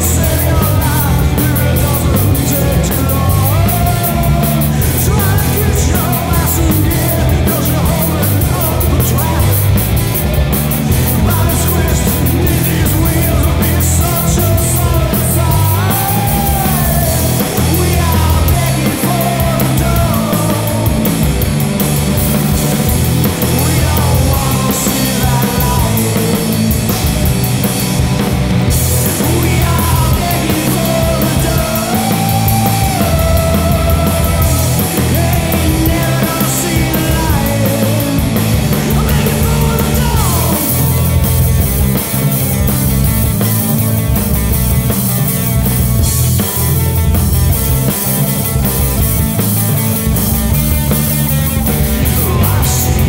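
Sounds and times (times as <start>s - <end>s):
person singing: 0.0s - 9.8s, 10.7s - 21.3s, 22.5s - 26.9s, 28.8s - 41.2s, 51.2s - 53.0s
punk rock band playing: 0.0s - 53.0s.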